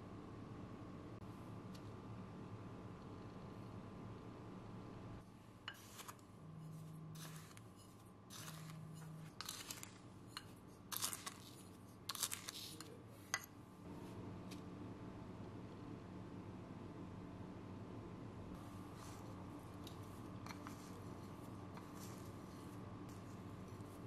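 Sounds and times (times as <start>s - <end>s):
powder scraping from glass bowl: 5.7s - 13.4s, 19.0s - 24.0s.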